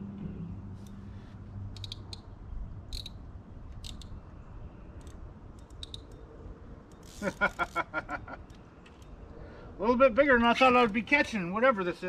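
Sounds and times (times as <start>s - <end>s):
fishing reel clicking: 1.7s - 2.3s, 2.9s - 4.2s, 5.0s - 6.3s, 6.9s - 7.8s.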